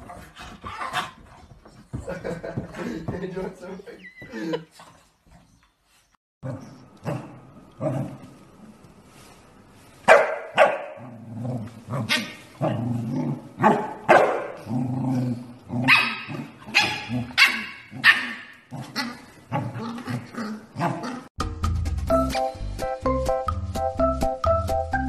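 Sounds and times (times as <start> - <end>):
puppy yapping barks: 10.1 - 11.0, 13.6 - 14.6, 15.9 - 18.5.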